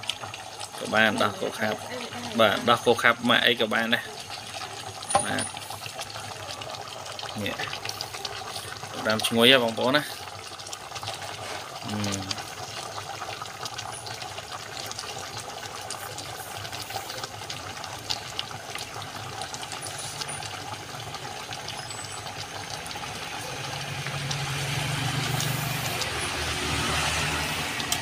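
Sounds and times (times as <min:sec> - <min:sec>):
curry simmering and bubbling: 0:00.0 - 0:28.0.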